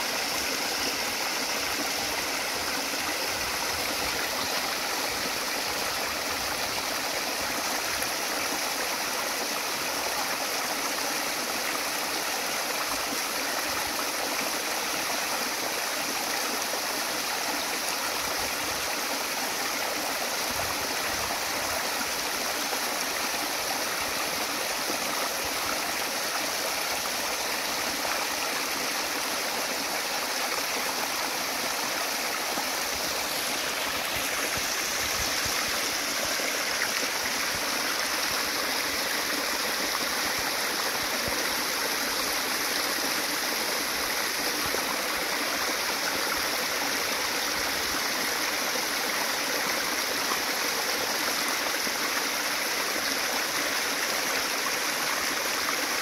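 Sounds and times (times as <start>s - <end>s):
waterfall splashing over rocks: 0.0s - 56.0s.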